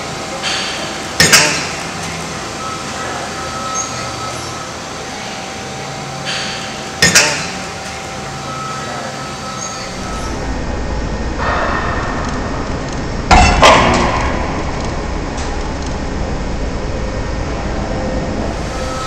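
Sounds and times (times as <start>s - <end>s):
forklift engine rumble: 7.7s - 19.0s
sharp knocks: 13.3s - 14.7s.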